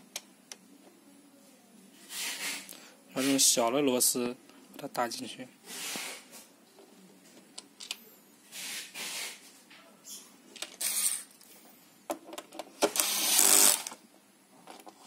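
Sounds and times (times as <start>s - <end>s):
electric screwdriver whirring: 10.8s - 11.3s, 12.9s - 14.0s
screws clicking on plastic: 12.8s - 14.0s.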